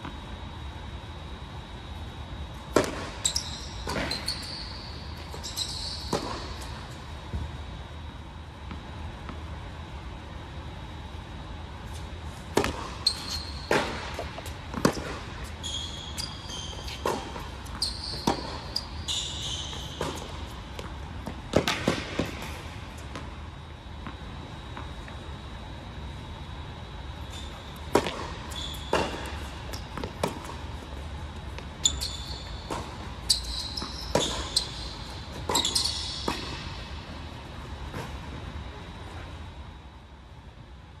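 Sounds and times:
tennis shoes squeaking on court: 2.5 - 7.7, 11.9 - 25.2, 27.1 - 38.2
racket hitting tennis ball: 2.7 - 4.3, 6.0 - 6.7, 12.5 - 13.1, 13.7 - 15.4, 16.8 - 17.5, 19.9 - 22.6, 27.8 - 30.7, 34.0 - 36.9
tennis ball bouncing: 2.7 - 4.3, 6.1 - 6.7, 13.7 - 15.3, 16.8 - 18.8, 19.9 - 23.3, 27.8 - 30.6, 35.4 - 36.8.

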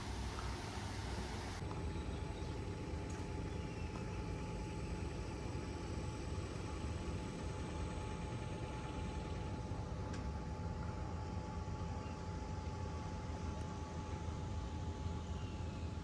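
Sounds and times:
faint machine hum: 0.0 - 16.0
low rumble and hiss: 0.0 - 16.0.

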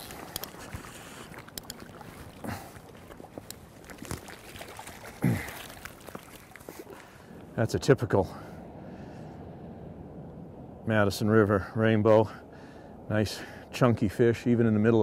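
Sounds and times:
fish splashing in water: 0.0 - 7.3.

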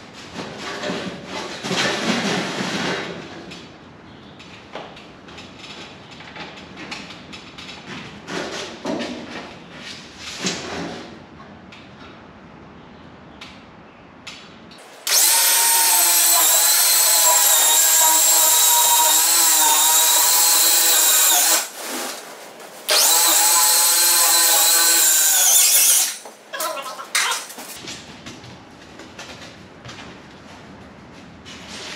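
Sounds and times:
power saw cutting foam board: 15.0 - 22.1, 22.9 - 26.3.

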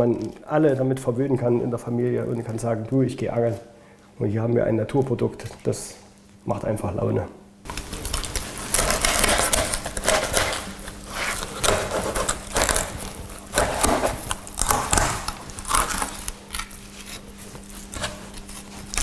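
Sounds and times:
faint steady hum: 0.0 - 19.0
knife scraping fish bones: 8.1 - 19.0.

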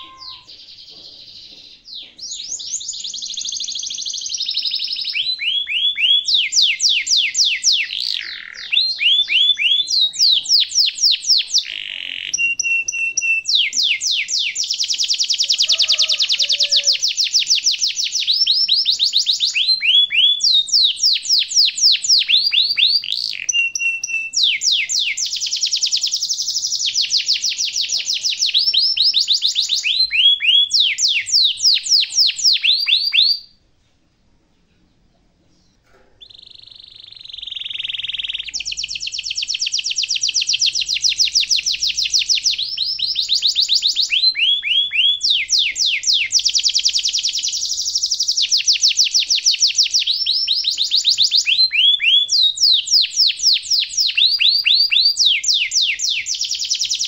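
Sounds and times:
canary steady whistle: 0.0 - 0.5, 12.4 - 33.5, 36.5 - 57.0
canary singing trills: 0.0 - 33.6, 35.6 - 57.0.

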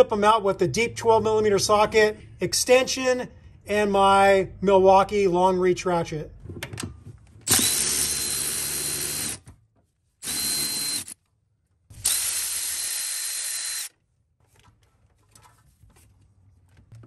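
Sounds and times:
cordless ratchet motor whine: 7.5 - 9.4, 10.2 - 11.2, 12.0 - 13.9.

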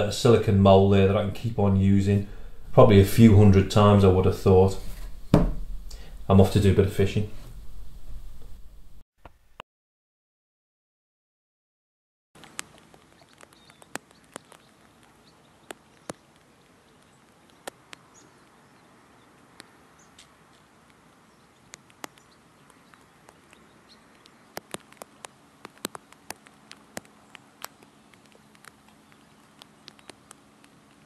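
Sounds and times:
low outdoor background: 0.0 - 9.6, 12.4 - 31.0
sharp irregular clicks: 21.7 - 31.0.

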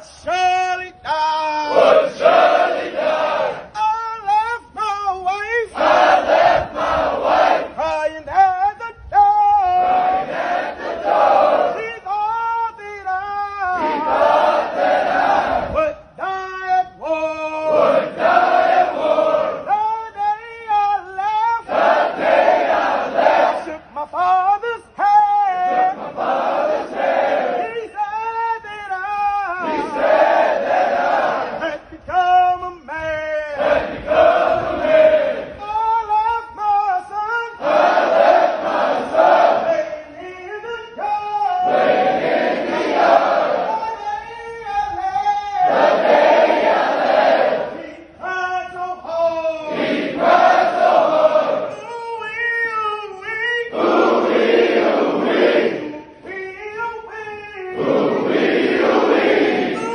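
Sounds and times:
drill sergeant singing cadence: 0.3 - 32.1, 33.5 - 52.2
group chanting in unison: 1.7 - 3.7, 5.7 - 7.8, 9.8 - 11.8, 13.7 - 15.8, 17.7 - 19.7, 21.6 - 23.8, 25.7 - 27.7, 29.6 - 31.8, 33.6 - 35.6, 37.6 - 40.0, 41.6 - 44.0, 45.7 - 48.0, 49.7 - 51.8, 53.7 - 56.2, 57.8 - 59.9.

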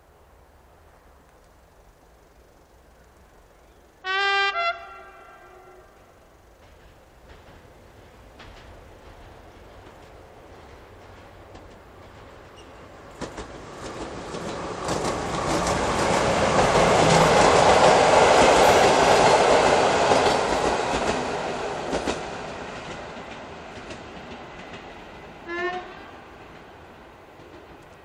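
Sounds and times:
diesel locomotive engine: 0.1 - 28.0
train wheels clattering over rail joints: 6.4 - 28.0.

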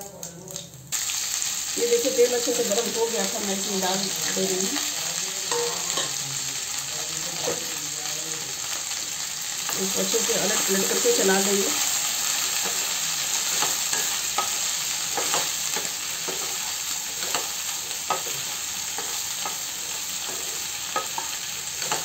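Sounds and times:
okra sizzling in oil: 0.0 - 22.0
spatula scraping pan: 10.2 - 22.0.

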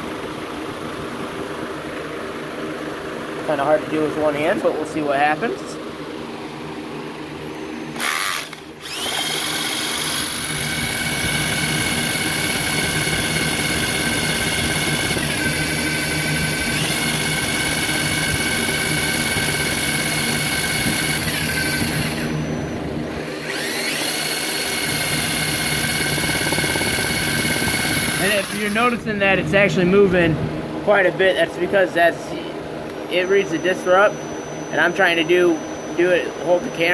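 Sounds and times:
electric drill whining: 7.5 - 29.0, 33.1 - 36.9.

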